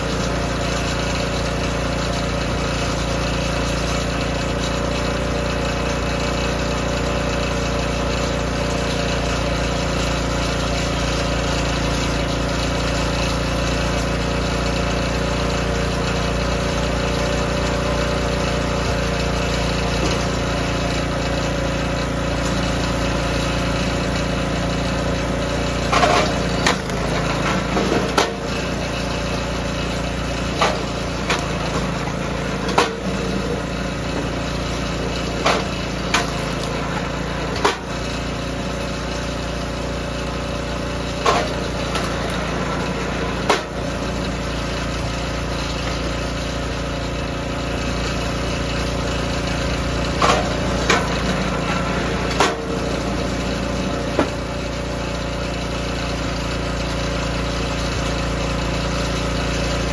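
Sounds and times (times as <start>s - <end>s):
log splitter engine running: 0.0s - 59.9s
log splitting knocks and cracks: 25.9s - 28.3s, 30.6s - 32.1s, 35.4s - 37.7s, 41.2s - 42.5s.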